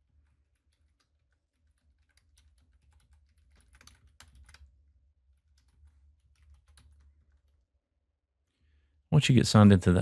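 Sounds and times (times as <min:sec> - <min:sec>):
typing on keyboard: 0:00.0 - 0:07.6.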